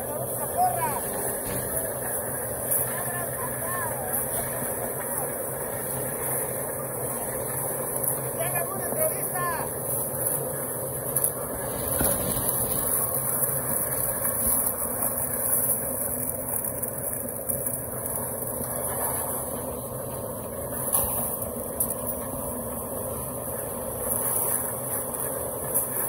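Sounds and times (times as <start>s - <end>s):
small engine running: 0.0s - 26.0s
shovels scraping wet concrete: 7.2s - 19.4s.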